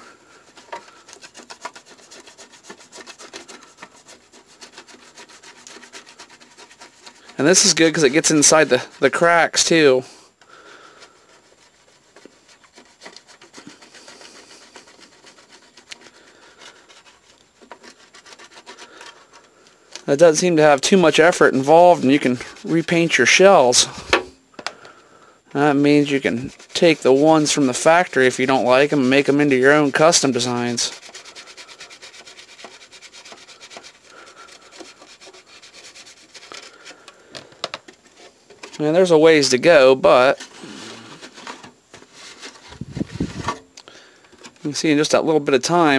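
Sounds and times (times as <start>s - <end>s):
toothbrush scrubbing plastic shell: 0.0s - 24.0s, 25.5s - 43.6s.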